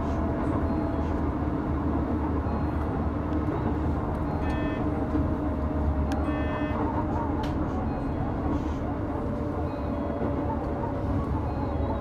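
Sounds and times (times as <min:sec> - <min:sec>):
train wheels rumbling on rails: 0:00.0 - 0:12.0
high ringing tone: 0:04.3 - 0:04.9, 0:06.2 - 0:06.8.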